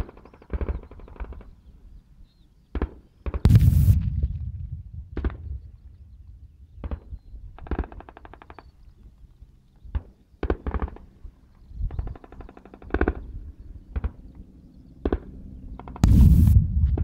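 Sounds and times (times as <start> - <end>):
single rifle shots: 3.5 - 7.1.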